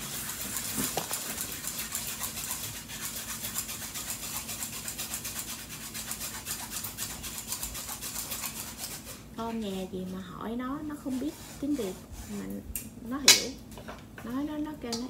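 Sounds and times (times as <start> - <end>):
whisk scraping through metal sieve: 0.0 - 10.2, 10.8 - 12.6.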